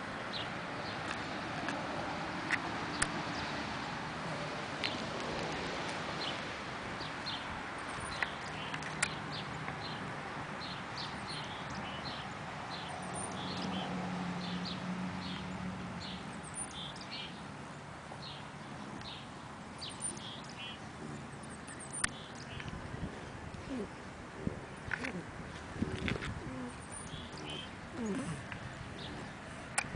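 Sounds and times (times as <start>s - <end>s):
small birds chirping: 6.2s - 29.9s.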